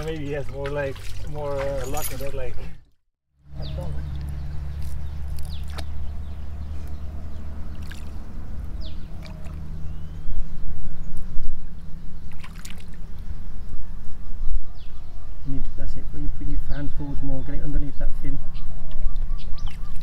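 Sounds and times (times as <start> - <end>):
water sloshing around fish: 0.0 - 2.8, 3.7 - 10.0, 12.2 - 13.4, 18.9 - 20.0.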